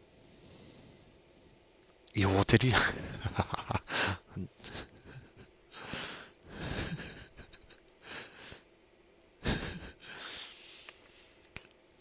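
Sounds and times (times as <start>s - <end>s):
man laughing quietly: 2.5s - 8.6s, 9.4s - 10.6s.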